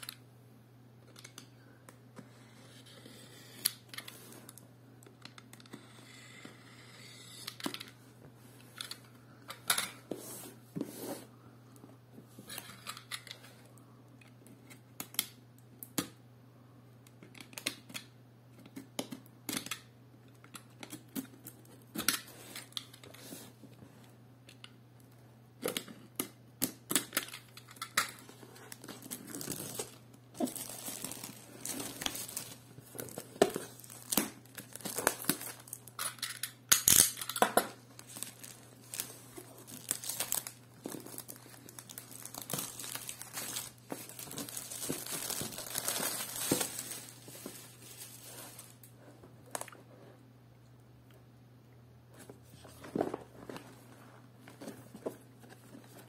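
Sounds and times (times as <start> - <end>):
plastic wrap crinkling and tearing: 27.2 - 48.9.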